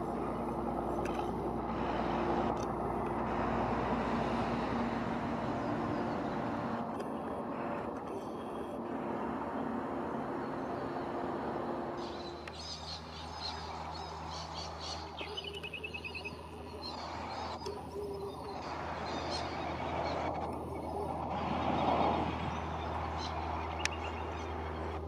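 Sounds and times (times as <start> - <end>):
steady low hum: 0.0 - 25.0
freight train rumbling past: 8.8 - 15.1
birds chirping and calling: 9.6 - 25.0
bird trill: 12.0 - 21.2.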